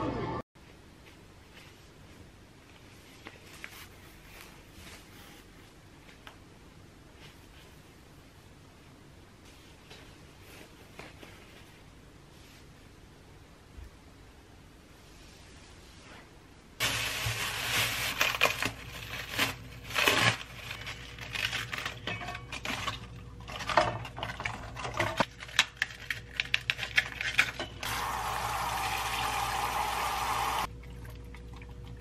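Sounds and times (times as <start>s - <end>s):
cabbage leaves tearing and snapping: 17.0s - 22.0s, 25.2s - 27.6s.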